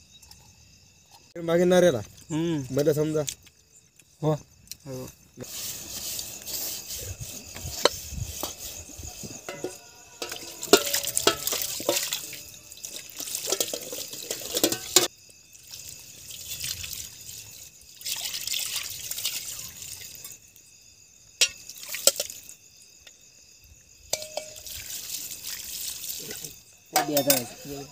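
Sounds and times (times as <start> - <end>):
scrubbing dishes by hand: 5.4 - 15.1, 24.1 - 27.6
steel dishes clinking: 9.4 - 12.6, 13.2 - 15.1, 24.1 - 24.7, 27.0 - 27.6
water splashing over dishes: 9.4 - 20.4, 21.4 - 22.6, 24.1 - 27.9.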